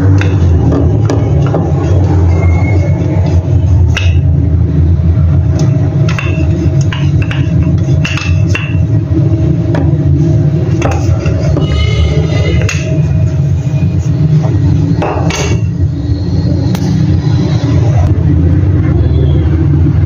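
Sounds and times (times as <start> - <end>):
loud low drone: 0.0 - 20.0
utensils knocking on wooden board: 6.0 - 8.9, 10.8 - 11.7.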